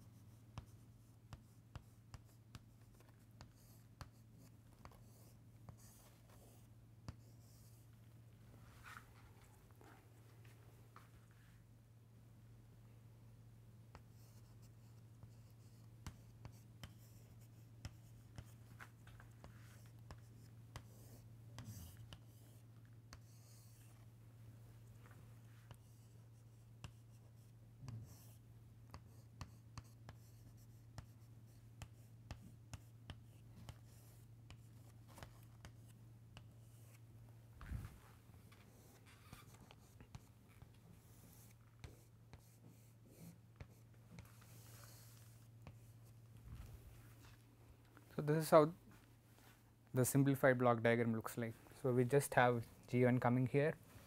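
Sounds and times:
chalk tapping and scratching: 0.0 - 8.0, 13.9 - 24.1, 25.0 - 37.1, 38.4 - 46.2.

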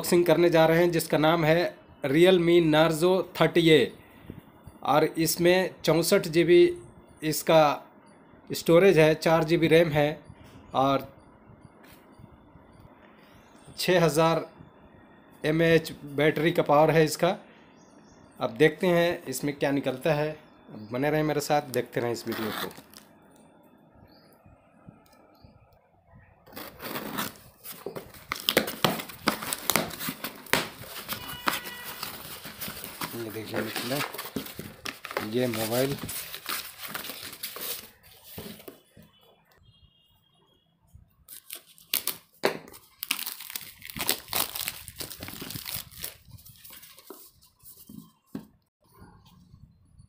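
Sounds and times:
cardboard crinkling and tearing: 26.5 - 38.7, 41.3 - 47.2
sharp cardboard cracks: 28.0 - 35.4.

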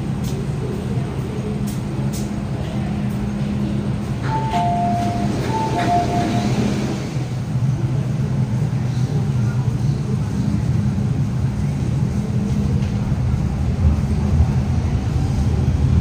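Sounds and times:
train humming low: 0.0 - 16.0
two-note electronic door chime: 4.3 - 6.7.

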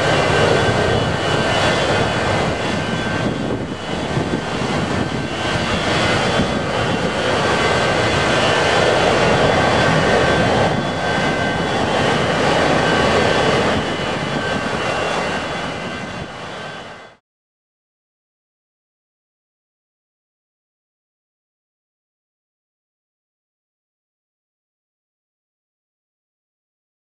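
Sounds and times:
jet engine rumble with whine: 0.0 - 17.2.

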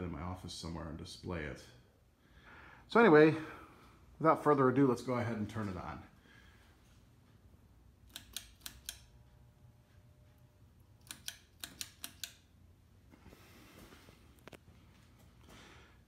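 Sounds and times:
ceiling fan humming: 0.0 - 16.0
pull-chain switch clicking: 8.1 - 9.1, 11.0 - 12.5.

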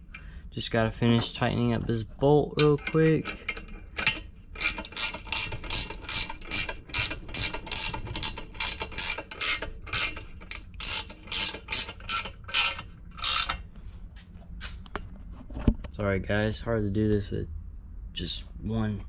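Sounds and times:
ratchet wrench clicking: 2.7 - 13.6.

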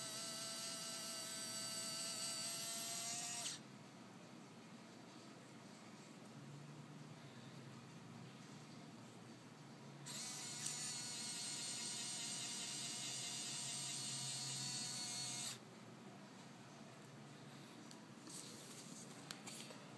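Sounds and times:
small electric motor whining: 0.0 - 3.6, 10.1 - 15.6.

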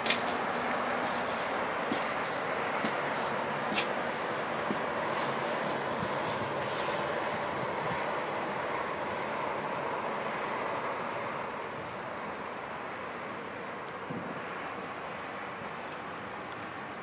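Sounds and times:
distant city traffic rumble: 0.0 - 17.0.

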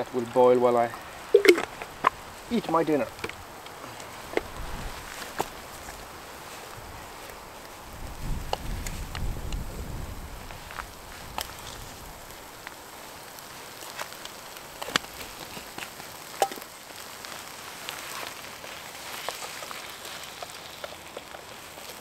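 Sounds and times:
stew sizzling in a pan: 0.0 - 22.0.

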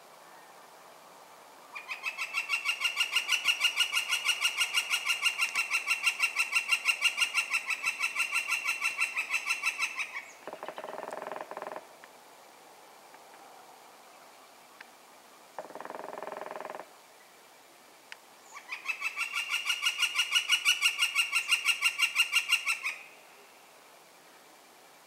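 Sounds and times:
woodpecker calling wik-wik-wik: 1.7 - 11.8, 15.6 - 16.9, 18.5 - 23.2
woodpecker drumming on tree: 2.3 - 11.9, 15.6 - 16.9.

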